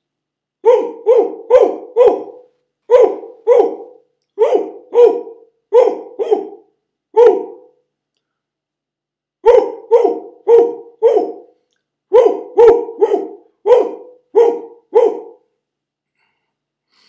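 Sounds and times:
man imitating dog barking: 0:00.6 - 0:06.6, 0:07.2 - 0:07.6, 0:09.4 - 0:11.5, 0:12.1 - 0:15.4.

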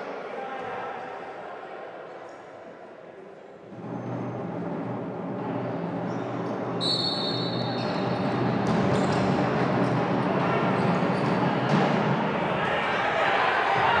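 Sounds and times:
echoing crowd din: 0:00.0 - 0:14.0
referee's whistle: 0:06.8 - 0:08.1.

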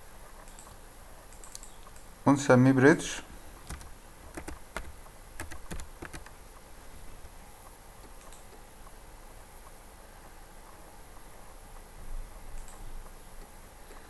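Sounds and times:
computer keyboard keystrokes: 0:03.6 - 0:06.4.

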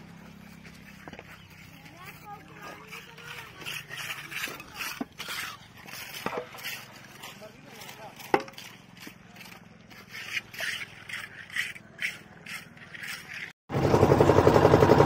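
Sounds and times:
footsteps crunching on gravel: 0:00.0 - 0:09.6.

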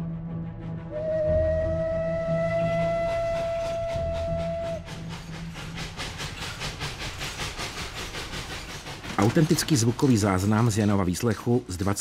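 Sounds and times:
train rhythmic clatter: 0:00.6 - 0:12.0
steam train whistle: 0:00.9 - 0:05.1.

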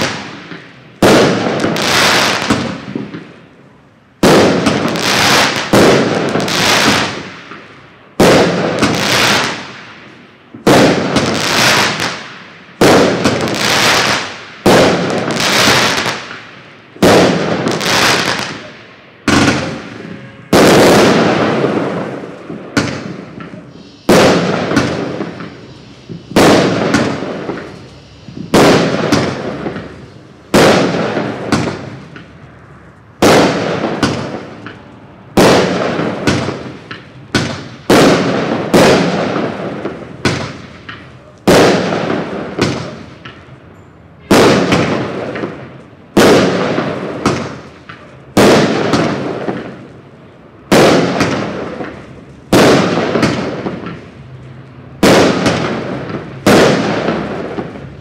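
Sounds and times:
firework cake bangs: 0:17.0 - 0:32.3, 0:35.4 - 0:43.4, 0:50.7 - 0:54.0.

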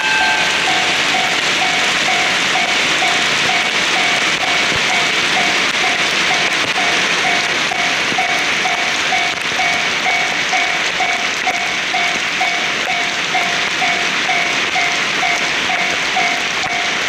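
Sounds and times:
level crossing bell dinging: 0:00.0 - 0:11.2
torrential rain hissing: 0:00.0 - 0:17.0.

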